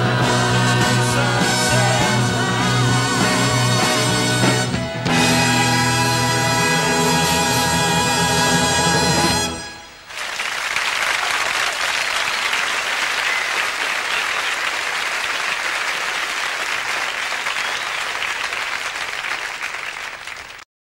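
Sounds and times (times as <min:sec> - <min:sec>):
audience applause: 0:10.0 - 0:20.6.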